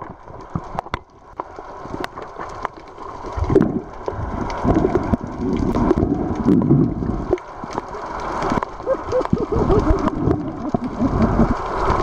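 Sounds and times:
water churning underwater: 0.0 - 12.0.

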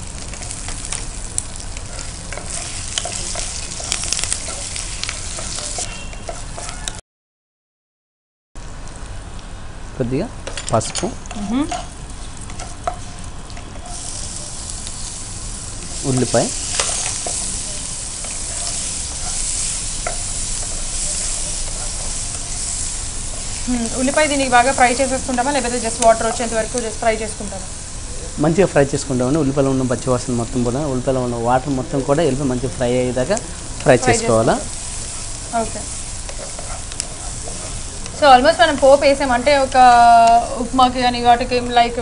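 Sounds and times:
spices sizzling in hot fat: 0.0 - 7.0, 8.6 - 42.0
spatula clicking: 1.8 - 7.0.

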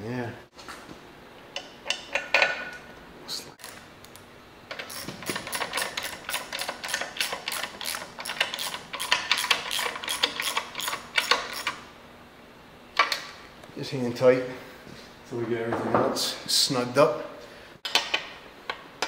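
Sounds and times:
socket ratchet clicking: 4.7 - 11.8.

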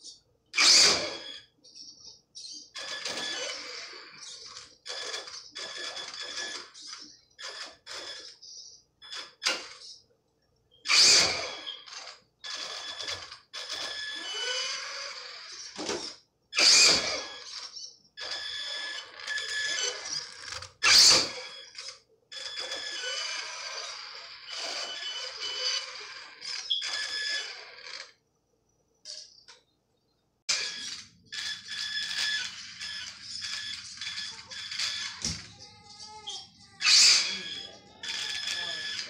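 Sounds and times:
toy car motor whining: 0.6 - 1.6, 2.4 - 10.0, 10.8 - 28.2, 30.5 - 39.0
loud sharp noises: 32.1 - 39.0.

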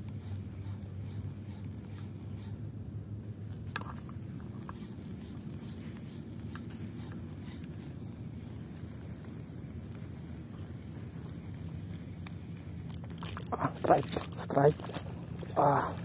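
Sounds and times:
steady low rumble: 0.0 - 16.0
fishing reel ticking: 12.9 - 16.0.

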